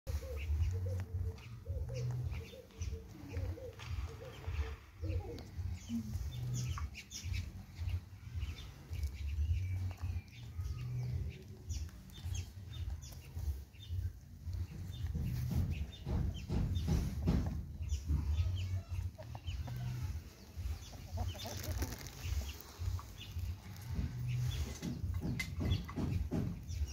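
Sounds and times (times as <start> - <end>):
hen pecking clicks: 18.8 - 26.9.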